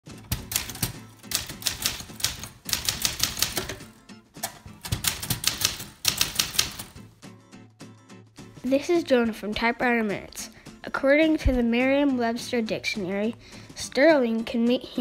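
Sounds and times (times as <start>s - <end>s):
manual typewriter typing: 0.1s - 7.0s.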